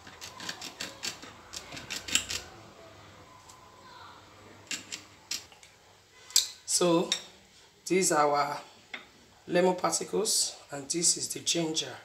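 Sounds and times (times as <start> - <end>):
knife scraping ceramic plate: 0.1 - 2.4.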